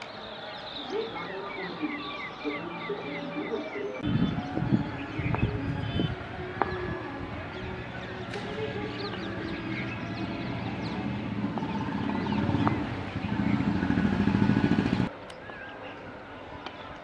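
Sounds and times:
small birds chirping: 0:00.0 - 0:17.0
vehicle engine running: 0:07.4 - 0:15.1.

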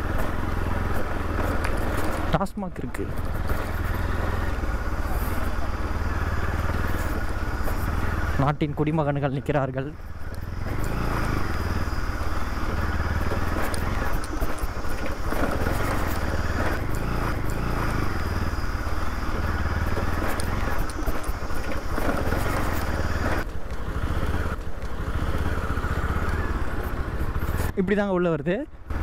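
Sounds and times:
motorcycle engine running: 0:00.0 - 0:29.0
road noise: 0:00.0 - 0:29.0.

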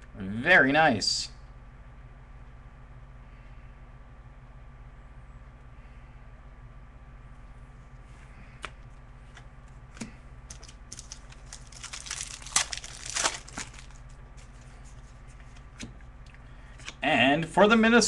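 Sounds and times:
steady low hum: 0:00.0 - 0:18.0
card pack wrapper crinkling and tearing: 0:10.5 - 0:14.2.

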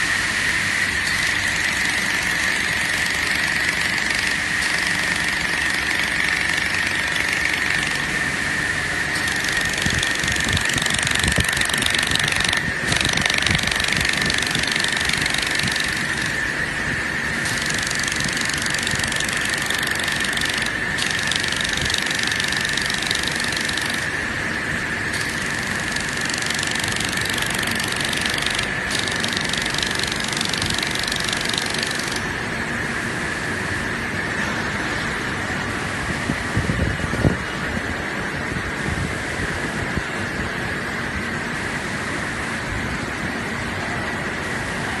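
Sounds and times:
machine hiss: 0:00.0 - 0:33.4
machine high whine: 0:00.0 - 0:39.5.

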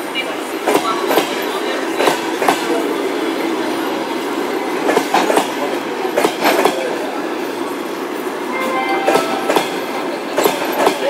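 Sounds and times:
train wheels rumbling on rail: 0:00.0 - 0:11.0
wheels clacking over rail joints: 0:09.5 - 0:11.0.

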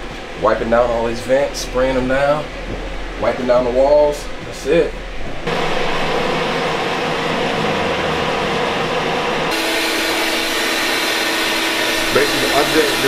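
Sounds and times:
vacuum cleaner running: 0:05.4 - 0:13.0.

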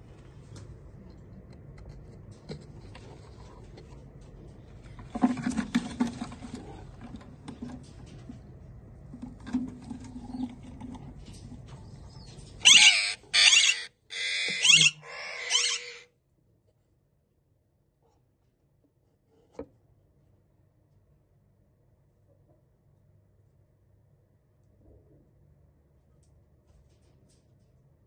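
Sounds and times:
parakeet screeching: 0:12.6 - 0:16.1.

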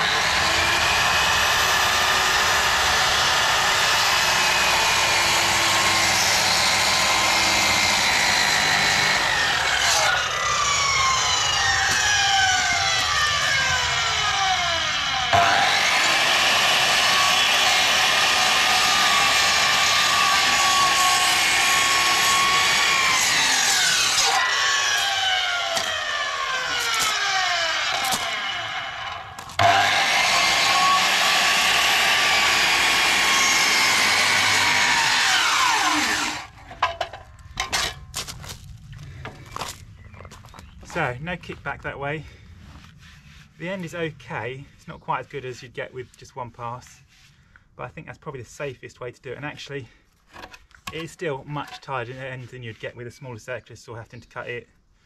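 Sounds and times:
circular saw cutting timber: 0:00.0 - 0:36.9.

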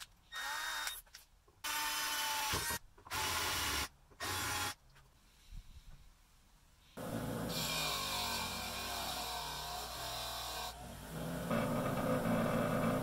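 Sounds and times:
cordless drill drilling into steel: 0:00.3 - 0:01.0.

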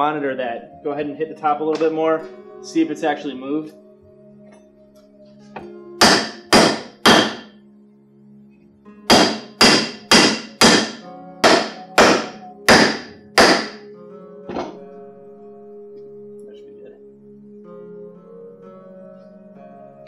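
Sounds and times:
hammer striking wooden handle: 0:05.6 - 0:07.5, 0:09.1 - 0:13.8, 0:14.5 - 0:14.8.

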